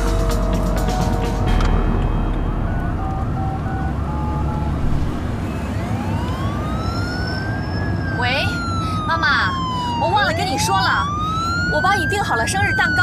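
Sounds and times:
car cabin road rumble: 0:01.4 - 0:05.5
emergency siren wailing: 0:02.2 - 0:13.0.

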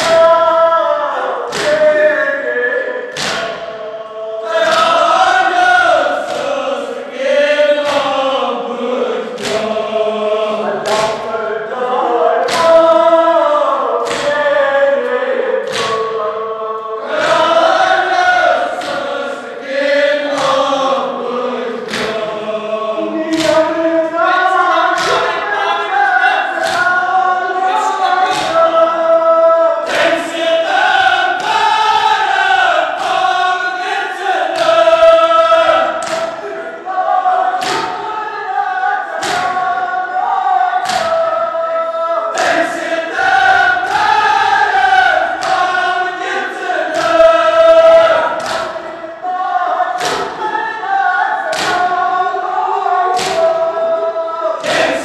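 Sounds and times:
crowd chanting a lament: 0:00.0 - 0:55.0.

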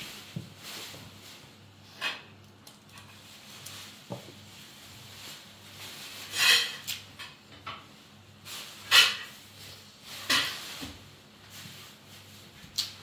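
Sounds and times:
knife scraping fruit: 0:06.2 - 0:07.0.

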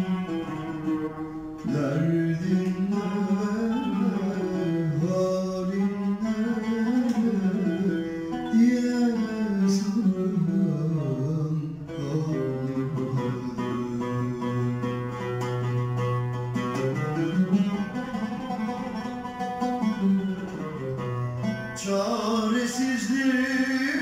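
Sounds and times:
oud playing: 0:00.0 - 0:24.0
man singing ornamented song: 0:01.6 - 0:15.6, 0:21.7 - 0:24.0.

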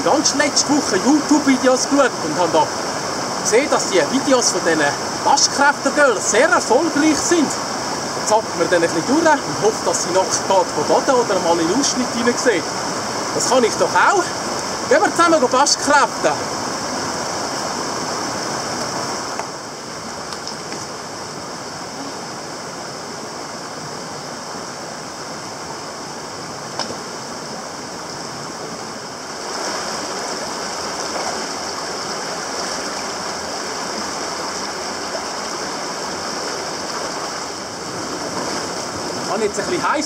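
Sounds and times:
stream rushing over stones: 0:00.0 - 0:40.0.

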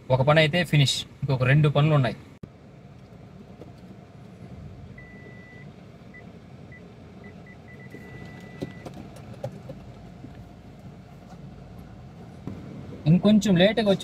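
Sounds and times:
car low hum: 0:00.0 - 0:14.0
parking sensor beeping: 0:05.0 - 0:09.3.

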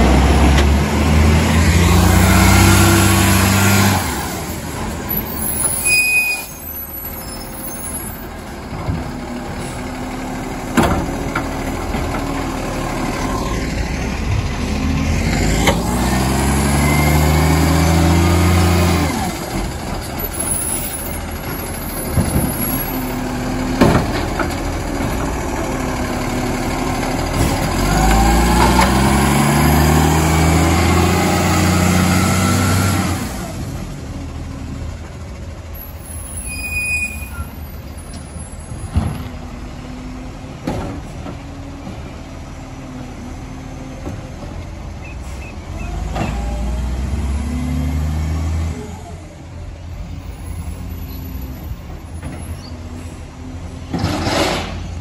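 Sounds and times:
garbage truck engine revving: 0:00.0 - 0:05.8, 0:09.0 - 0:20.4, 0:21.3 - 0:34.5, 0:45.6 - 0:49.2.

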